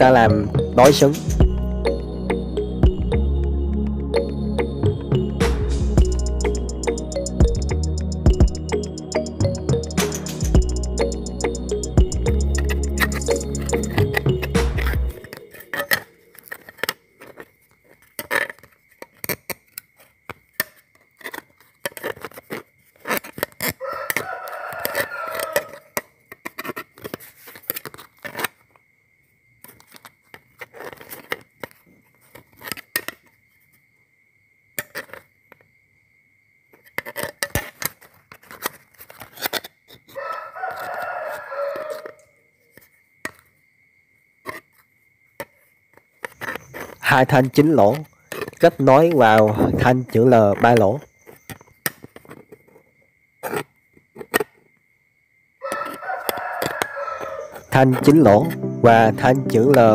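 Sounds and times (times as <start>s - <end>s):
rooster crowing: 23.8s - 25.9s, 40.2s - 42.4s, 55.6s - 57.9s.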